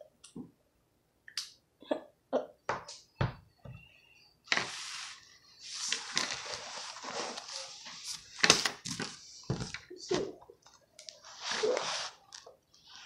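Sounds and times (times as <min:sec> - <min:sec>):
paper rustling and scraping: 0:04.5 - 0:09.8, 0:11.2 - 0:13.0.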